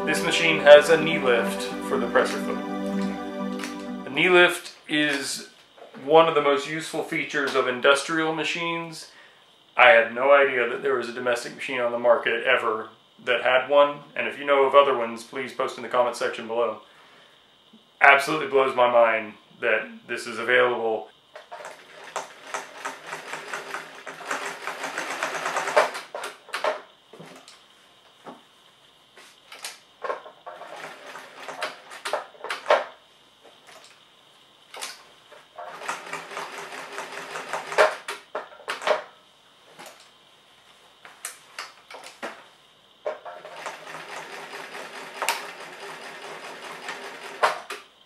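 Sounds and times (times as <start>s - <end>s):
sewing machine stitching: 21.5s - 26.1s, 35.6s - 38.1s, 43.4s - 47.7s.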